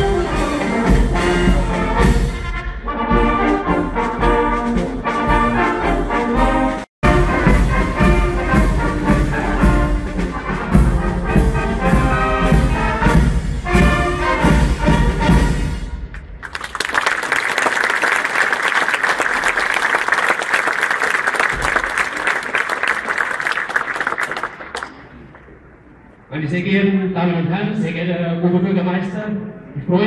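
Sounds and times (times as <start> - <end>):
brass band playing: 0.0 - 16.1
bass drum beat: 7.0 - 15.5.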